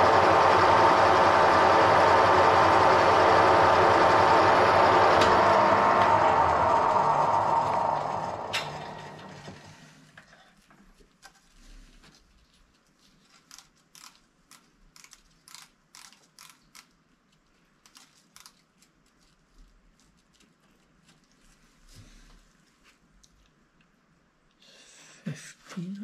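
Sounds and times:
machine tool winding down: 0.0s - 9.9s.

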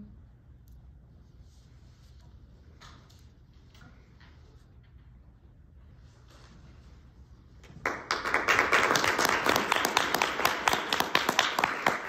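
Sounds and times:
audience applause: 7.8s - 12.0s.

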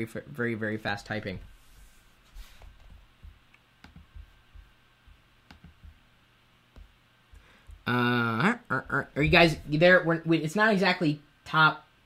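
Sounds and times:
computer keys clicking: 2.8s - 4.3s, 5.5s - 6.0s.

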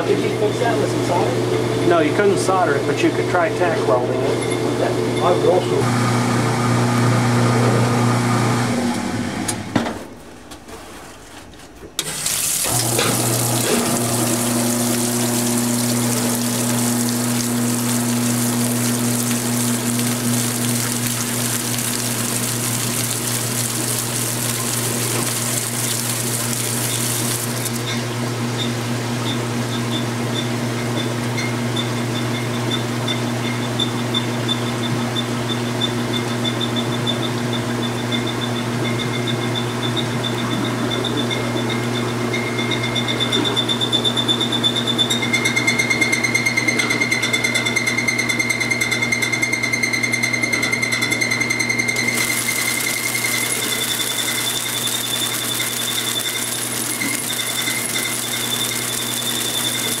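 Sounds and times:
washing machine spinning hum: 0.0s - 60.0s
water spraying hiss: 12.1s - 27.8s, 52.2s - 60.0s.

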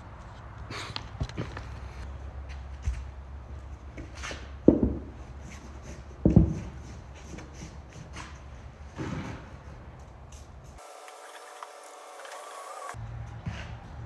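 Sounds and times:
rubber tire thumping: 4.0s - 5.2s, 6.2s - 7.0s.

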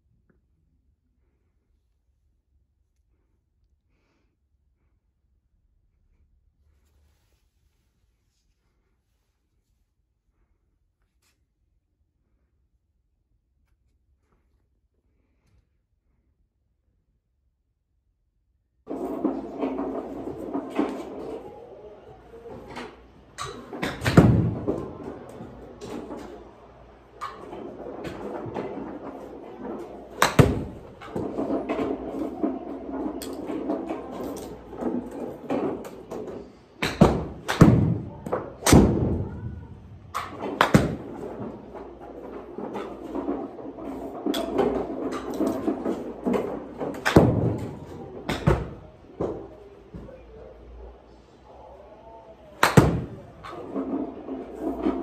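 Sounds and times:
room hum: 0.0s - 55.0s
golf balls struck hitting nets: 23.4s - 26.4s, 27.2s - 39.2s, 40.1s - 49.4s, 52.6s - 53.8s.

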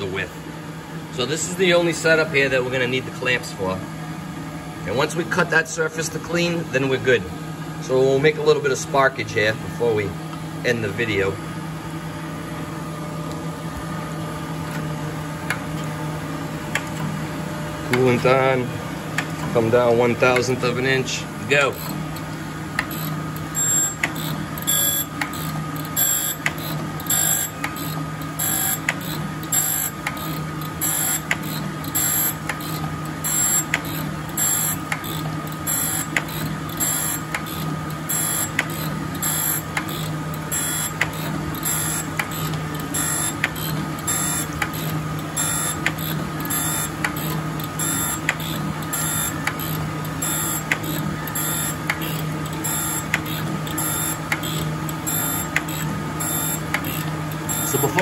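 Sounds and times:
surface grinder motor hum and whine: 0.0s - 58.0s
grinding wheel hiss and tick: 21.8s - 58.0s.

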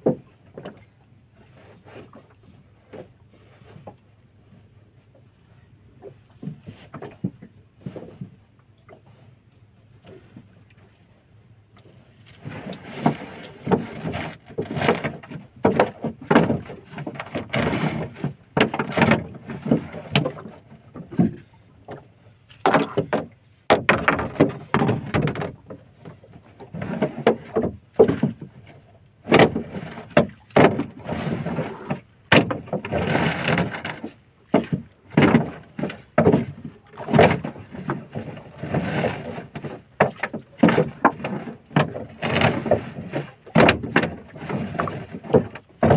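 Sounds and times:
crab traps knocking against hull: 22.6s - 25.8s, 31.7s - 38.4s, 43.4s - 45.9s.

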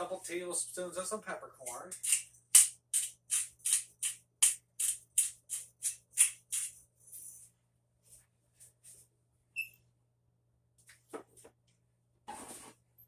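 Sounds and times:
pepper mill grinding: 2.0s - 6.8s.

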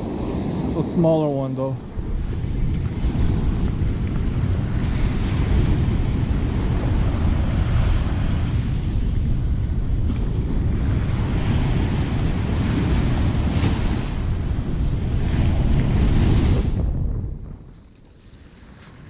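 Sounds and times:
breaking surf: 0.0s - 16.9s
wind rumbling on microphone: 0.0s - 19.0s.

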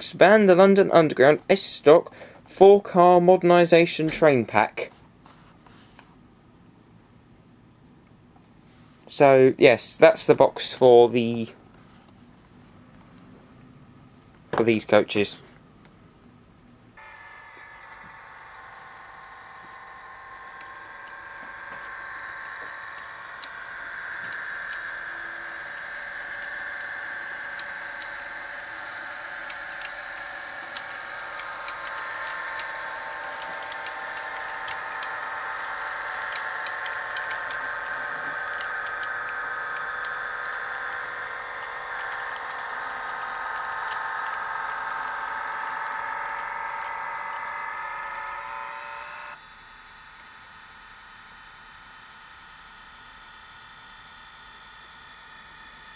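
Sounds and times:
model train motor whine: 17.0s - 55.9s
wheels clicking on track: 20.6s - 48.8s.

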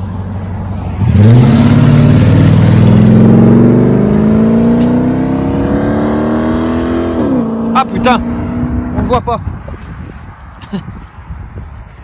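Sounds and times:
car engine accelerating hard: 0.6s - 9.2s.

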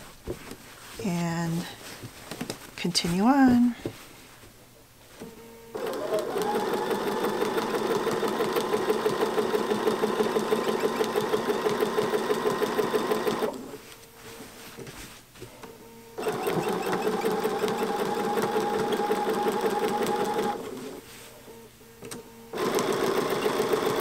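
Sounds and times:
sewing machine stitching: 5.8s - 13.7s, 16.2s - 21.0s, 22.6s - 24.0s
sewing machine foot squeak: 16.2s - 17.8s.

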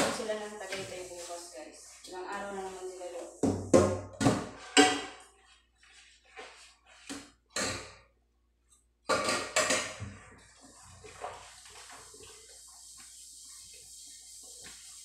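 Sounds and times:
tap water running: 9.6s - 15.0s.

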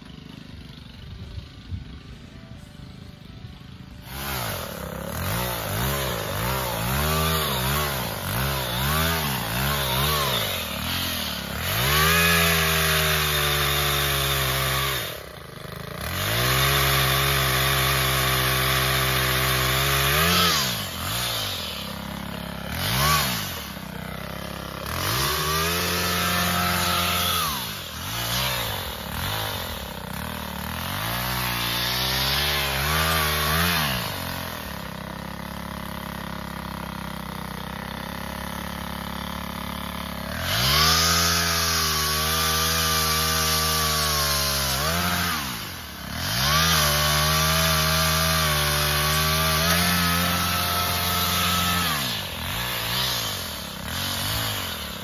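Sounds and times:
chainsaw engine revving: 0.0s - 55.0s.

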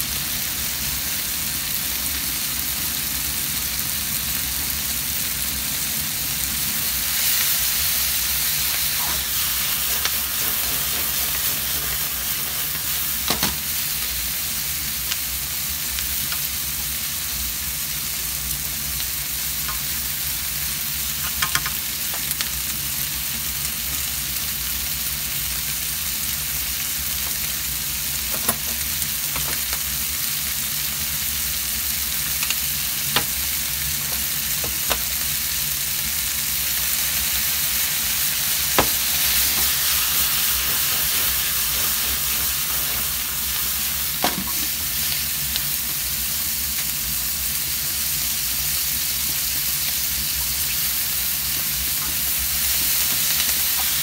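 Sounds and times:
food sizzling in a frying pan: 0.0s - 54.0s
chopsticks clicking against pan: 21.2s - 21.8s.

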